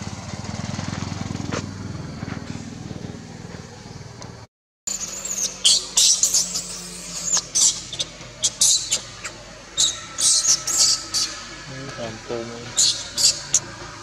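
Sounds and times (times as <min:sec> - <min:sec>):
baby monkey screaming: 0:04.9 - 0:13.8.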